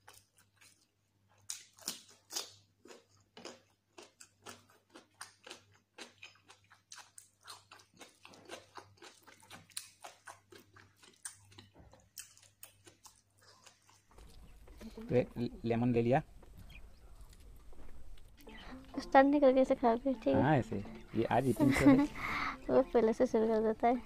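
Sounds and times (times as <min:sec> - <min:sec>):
wet mouth sounds: 0:00.0 - 0:14.9
crunchy chewing: 0:00.0 - 0:15.5, 0:16.2 - 0:19.0.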